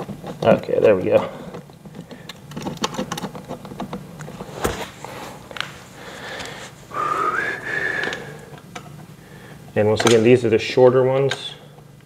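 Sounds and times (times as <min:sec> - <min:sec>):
parts and bolts clicking: 0:00.0 - 0:04.4, 0:10.0 - 0:10.4.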